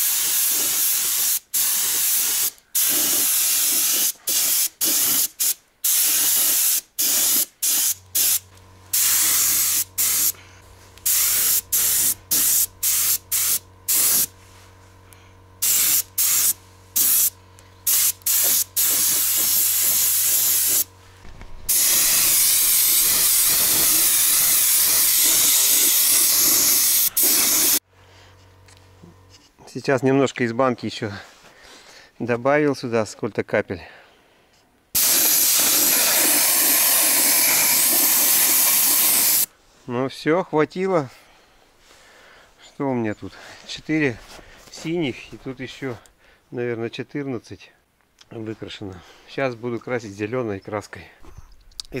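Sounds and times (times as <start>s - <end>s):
paint spray gun hissing: 0.0s - 27.8s, 35.0s - 39.5s
steady low hum: 7.4s - 31.6s.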